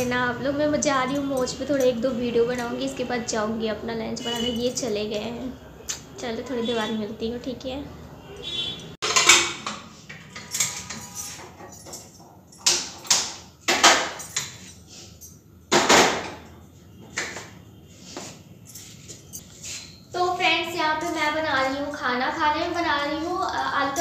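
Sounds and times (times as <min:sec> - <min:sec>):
pots and utensils clanking: 0:09.0 - 0:16.4.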